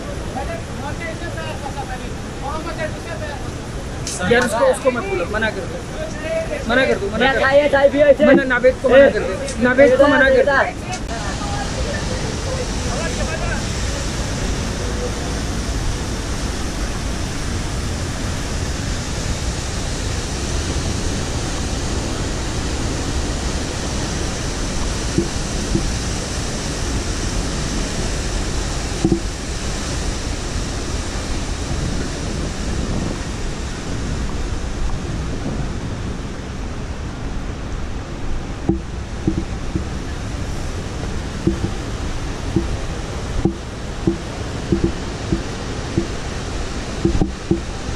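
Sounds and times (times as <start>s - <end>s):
waterfall rushing: 0.0s - 47.9s.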